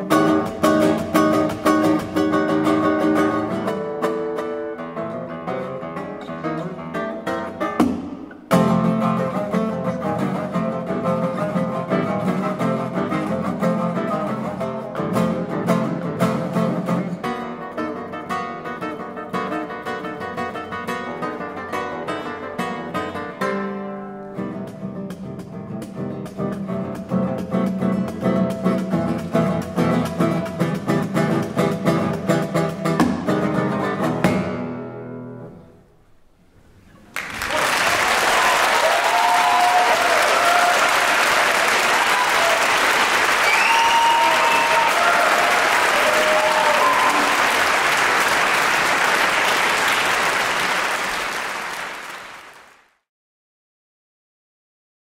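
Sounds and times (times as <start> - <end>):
classical guitar playing: 0.0 - 37.1
audience whooping: 37.1 - 52.7
audience applauding: 37.1 - 53.0.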